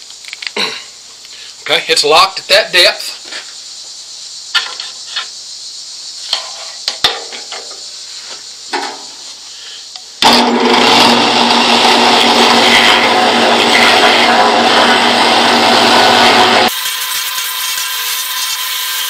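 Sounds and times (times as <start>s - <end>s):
drill press running: 10.2s - 19.0s
rotary bit grinding wood: 10.2s - 19.0s.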